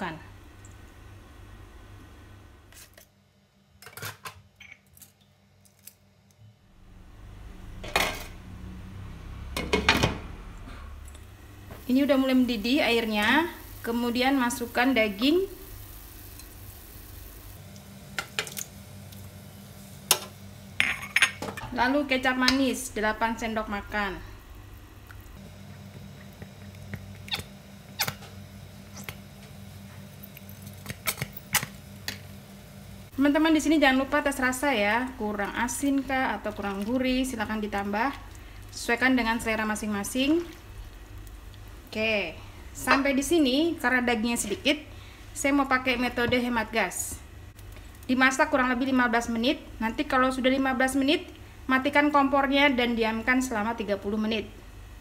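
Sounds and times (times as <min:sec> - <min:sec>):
low hum: 0:06.4 - 0:30.8.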